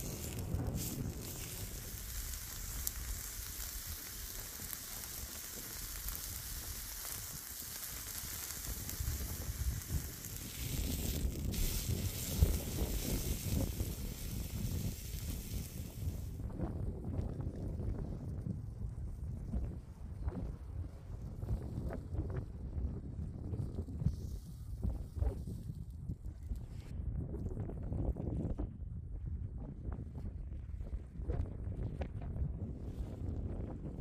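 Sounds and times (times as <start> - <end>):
beef roast sizzling on a grill: 0.0 - 16.4.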